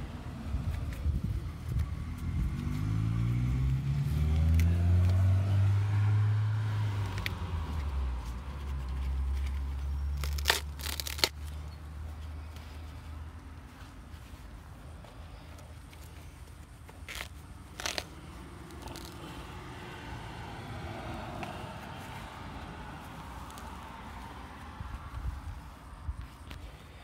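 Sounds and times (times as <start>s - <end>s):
vehicle engine accelerating: 0.0s - 11.8s, 17.7s - 26.4s.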